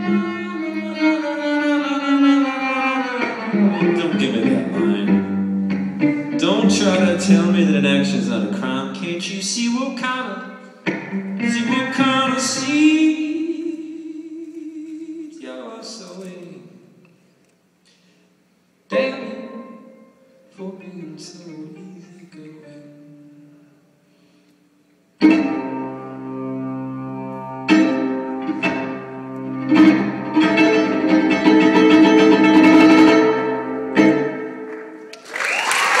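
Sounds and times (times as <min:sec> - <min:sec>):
bowed violin notes: 0:00.0 - 0:09.0, 0:25.2 - 0:35.1
strummed guitar: 0:00.0 - 0:13.7, 0:25.2 - 0:35.1
man singing: 0:03.9 - 0:05.3, 0:06.4 - 0:10.6, 0:11.4 - 0:16.8, 0:18.9 - 0:19.9, 0:20.5 - 0:23.6
audience applause and cheering: 0:35.0 - 0:36.0.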